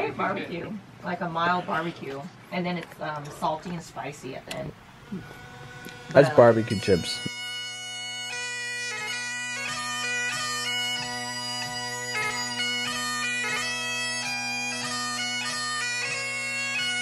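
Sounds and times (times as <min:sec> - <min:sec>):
bagpipe music: 0:03.8 - 0:17.0.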